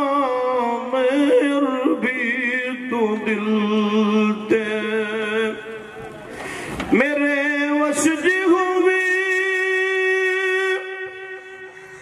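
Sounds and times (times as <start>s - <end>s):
man singing with vibrato: 0.0s - 12.0s.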